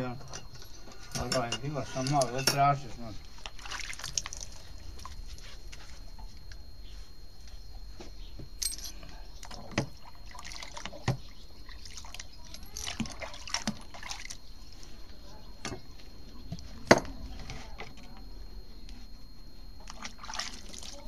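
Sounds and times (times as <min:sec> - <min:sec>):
water splashing in a plastic bucket: 0:03.4 - 0:05.2, 0:09.4 - 0:14.4, 0:19.8 - 0:21.0.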